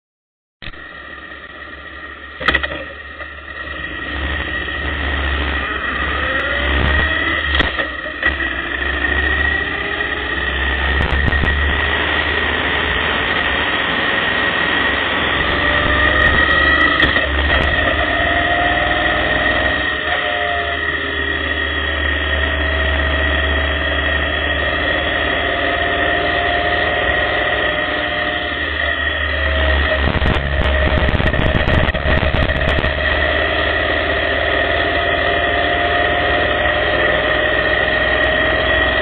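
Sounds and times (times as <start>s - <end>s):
motorcycle engine accelerating: 0.6s - 39.0s
wind and road noise: 0.6s - 39.0s.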